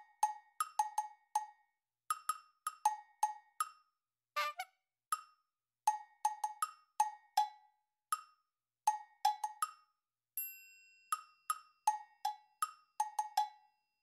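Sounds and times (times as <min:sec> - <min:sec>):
wood-block background music: 0:00.0 - 0:10.0, 0:11.0 - 0:14.0.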